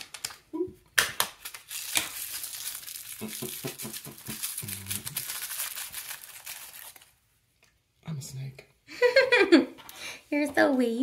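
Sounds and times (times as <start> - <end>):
plastic packaging crinkling: 0.0 - 7.7.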